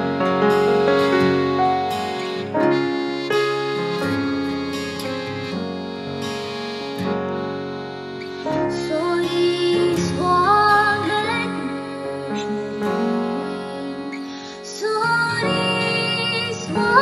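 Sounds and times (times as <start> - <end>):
folk song on guitar piano accordion: 0.0 - 17.0
woman singing: 8.6 - 17.0.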